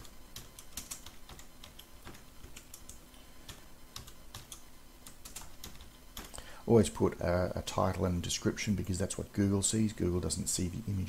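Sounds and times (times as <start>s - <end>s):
keyboard typing: 0.0s - 6.4s.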